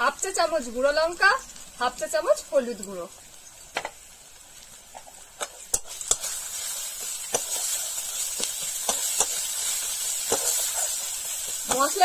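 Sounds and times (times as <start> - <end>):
food sizzling in oil: 0.0 - 12.0
metal spatula scraping a pan: 5.4 - 12.0.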